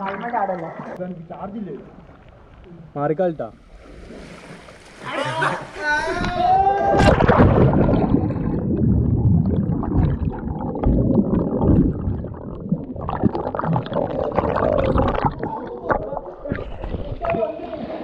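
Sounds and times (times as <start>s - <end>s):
low underwater rumble: 6.1s - 17.9s
camera splashing into water: 7.0s - 8.6s
underwater gurgling and bubbling: 7.0s - 18.0s.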